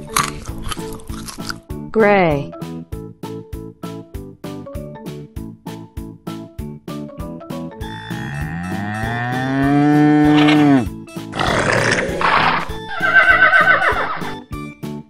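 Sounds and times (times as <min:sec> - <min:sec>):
children's music with steady beat: 0:02.5 - 0:11.3
cartoon bull moo: 0:08.0 - 0:14.4
horse whinny: 0:08.1 - 0:14.4.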